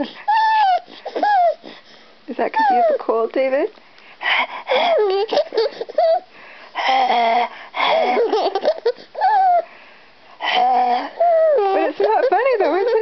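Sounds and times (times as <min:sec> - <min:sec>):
baby laughing and giggling: 0:00.0 - 0:01.6, 0:04.7 - 0:06.3, 0:06.9 - 0:09.7, 0:10.6 - 0:13.0
baby wheezing: 0:00.0 - 0:02.0, 0:04.3 - 0:09.7, 0:10.4 - 0:12.0.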